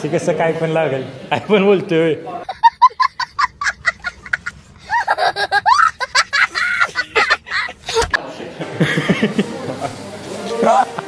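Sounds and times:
young child laughing: 2.4 - 8.2.

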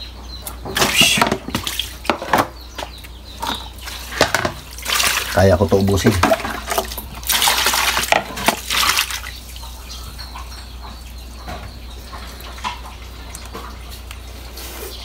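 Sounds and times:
hands splashing water in tub: 0.7 - 9.6.

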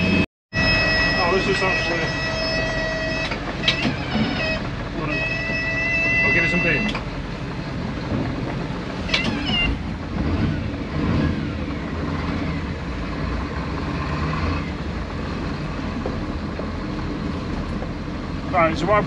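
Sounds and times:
brief high squeak: 0.0 - 7.0, 9.1 - 9.8
boat engines droning: 0.0 - 19.0
hull and water noise: 0.0 - 19.0.

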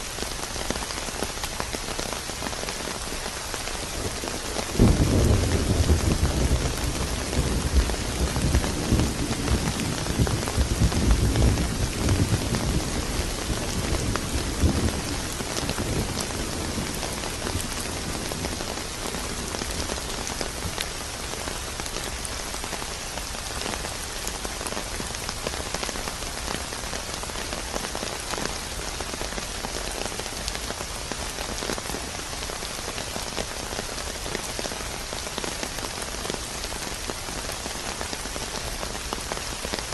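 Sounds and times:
heavy rain: 0.0 - 39.9
low rumble of thunder: 4.7 - 18.7.

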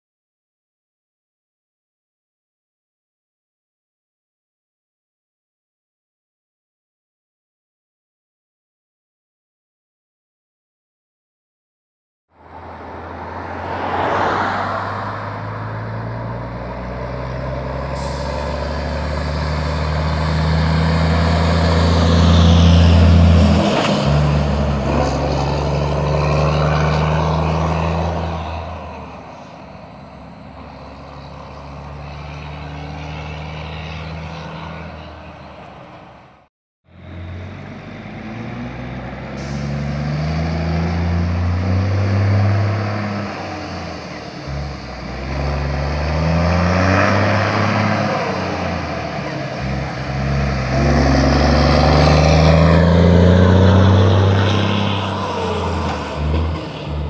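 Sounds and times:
truck diesel engine accelerating: 12.4 - 57.0.

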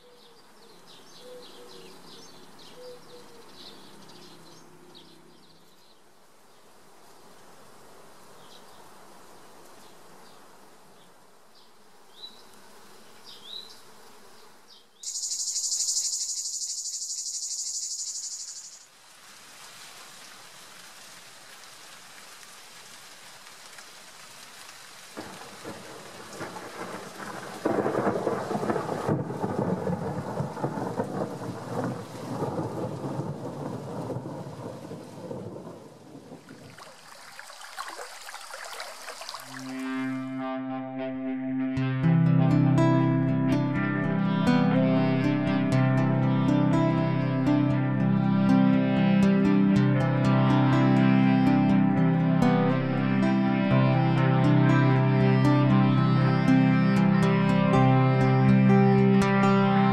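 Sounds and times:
loud pulsing high-pitched hiss: 15.0 - 18.9
heavy rain: 18.9 - 40.0
rolling thunder: 25.2 - 36.5.

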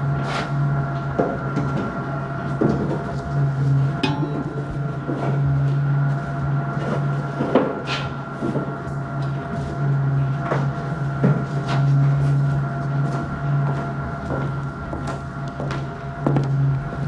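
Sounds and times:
steady low hum: 0.0 - 17.0
objects knocking and clanking: 4.0 - 5.4.

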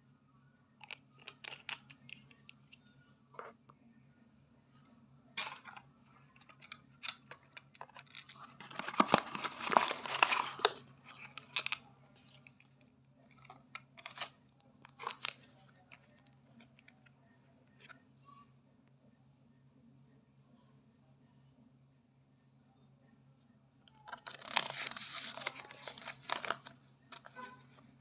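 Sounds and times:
faint steady hum: 0.0 - 28.0
paper packaging crinkling: 5.4 - 12.5, 13.4 - 16.1, 24.0 - 27.7.

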